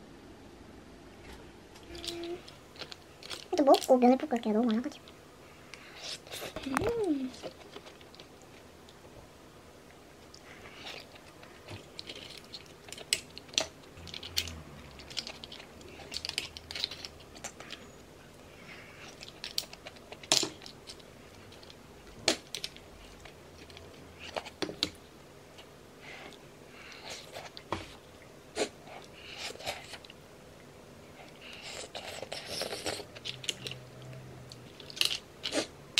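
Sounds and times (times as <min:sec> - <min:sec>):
soft chewing: 0:04.9 - 0:09.0, 0:31.1 - 0:35.7.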